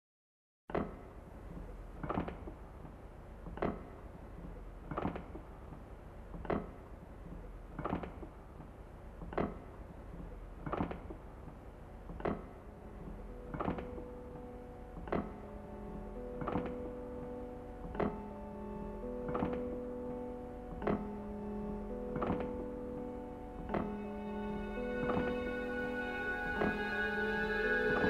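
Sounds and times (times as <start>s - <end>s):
slow regular thuds: 0.7s - 25.7s
low steady hum: 0.7s - 28.0s
held musical tones: 12.6s - 28.0s.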